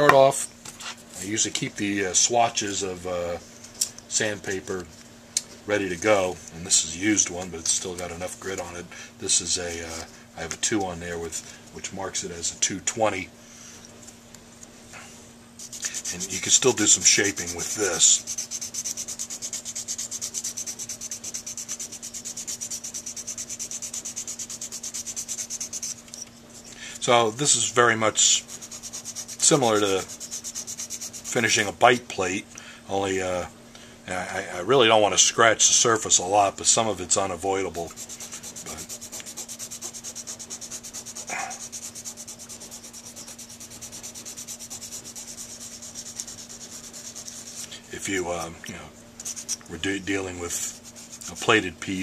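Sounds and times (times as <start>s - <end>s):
sandpaper rasping on metal: 15.6s - 31.8s, 37.4s - 48.6s, 49.2s - 52.0s.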